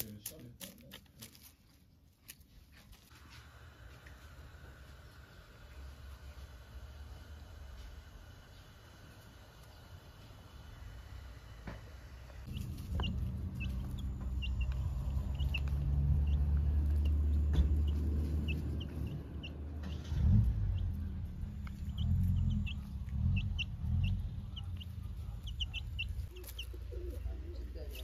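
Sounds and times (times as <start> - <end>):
loud low rumble: 10.5 - 27.9
chicks peeping: 12.4 - 28.0.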